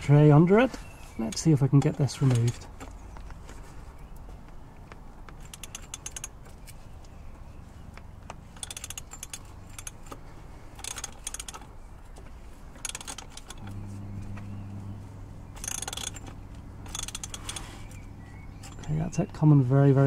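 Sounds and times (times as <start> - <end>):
ratchet wrench clicking: 5.3 - 6.4, 8.5 - 11.7, 12.8 - 13.7, 15.6 - 18.0
low steady hum: 6.9 - 20.0.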